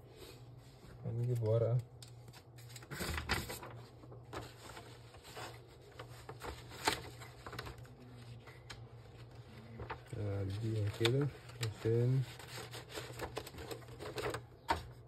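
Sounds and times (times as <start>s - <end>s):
paper rustling into printer: 1.1s - 15.0s.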